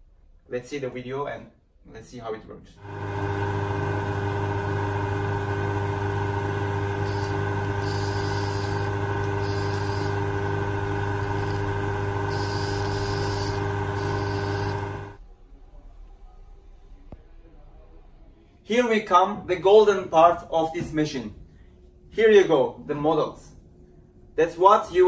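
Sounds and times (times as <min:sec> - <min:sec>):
lathe motor humming: 0:02.8 - 0:15.2
high hiss of cutting tool: 0:07.0 - 0:10.2, 0:11.2 - 0:11.7, 0:12.3 - 0:14.8.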